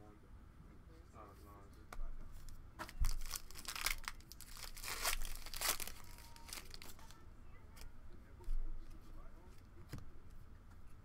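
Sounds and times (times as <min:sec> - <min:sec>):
wrapper crinkling and tearing: 0:02.8 - 0:07.2.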